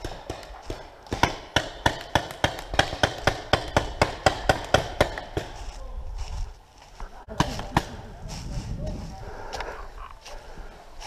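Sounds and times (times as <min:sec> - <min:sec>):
running footsteps on grass and leaves: 0:05.2 - 0:11.0.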